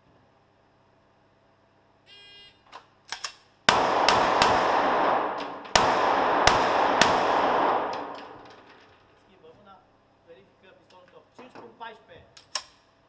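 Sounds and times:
pistol shots echoing indoors: 3.7s - 8.8s.

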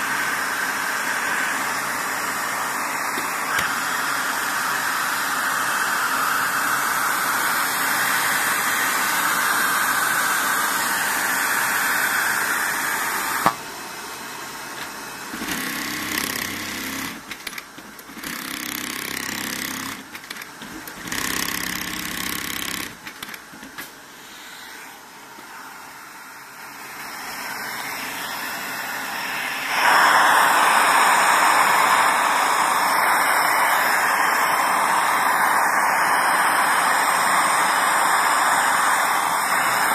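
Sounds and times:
loud steady hiss: 0.0s - 39.9s
sewing machine stitching: 14.8s - 23.9s.

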